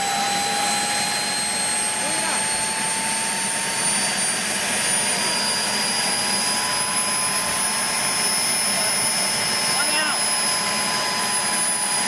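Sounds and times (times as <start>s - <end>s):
jet turbine whining: 0.0s - 12.0s.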